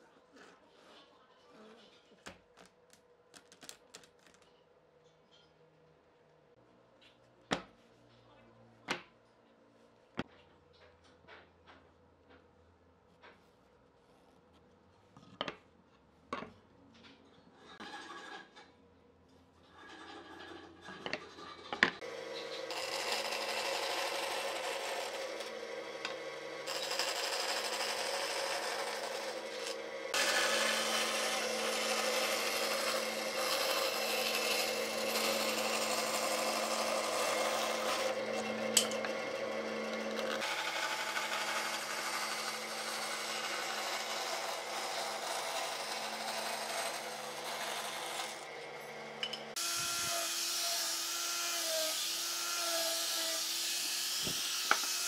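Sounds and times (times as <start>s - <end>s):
band saw cutting wood: 21.9s - 55.0s
angle grinder whine: 22.0s - 52.7s, 53.4s - 55.0s.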